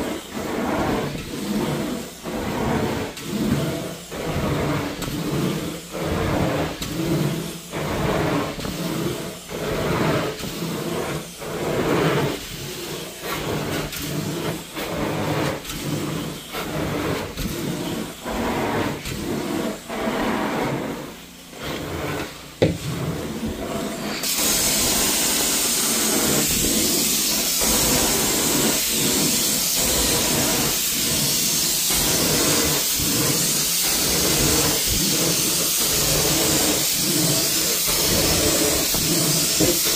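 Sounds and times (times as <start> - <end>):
extraction wand suction on carpet: 0.0 - 39.9
high hiss of spray jets: 24.2 - 39.9.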